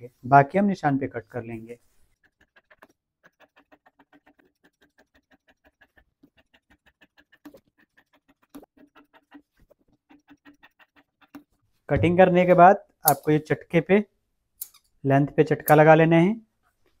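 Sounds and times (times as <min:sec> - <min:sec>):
scissors clicking: 0:13.0 - 0:13.3, 0:14.6 - 0:14.9, 0:15.7 - 0:15.9
scissors snipping cloth: 0:13.0 - 0:13.3.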